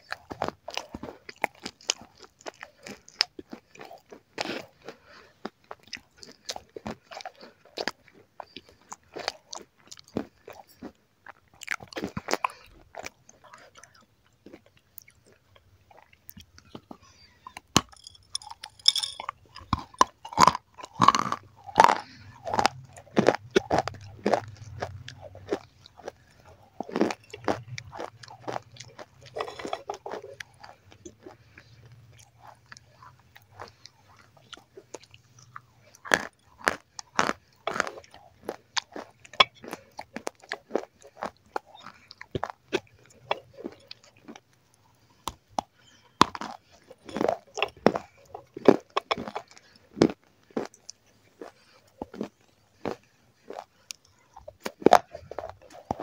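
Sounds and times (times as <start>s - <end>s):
chewing: 0.0s - 56.0s
crunching bites: 16.3s - 44.5s.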